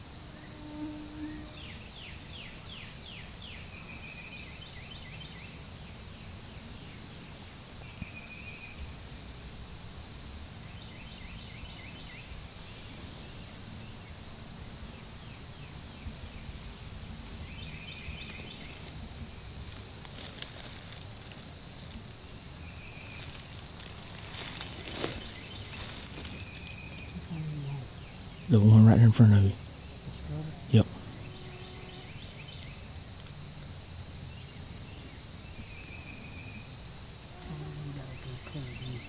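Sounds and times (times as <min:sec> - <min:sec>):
high insect drone: 0:00.0 - 0:39.0
songbirds singing: 0:01.2 - 0:07.2, 0:10.6 - 0:33.0, 0:34.2 - 0:39.0
low wind rumble: 0:12.4 - 0:37.2.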